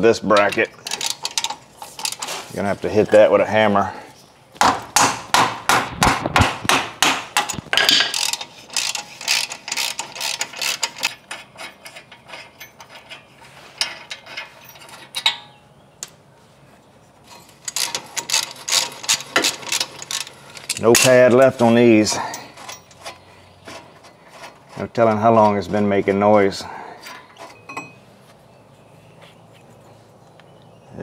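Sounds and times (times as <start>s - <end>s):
ratchet wrench clicking: 7.9s - 11.7s.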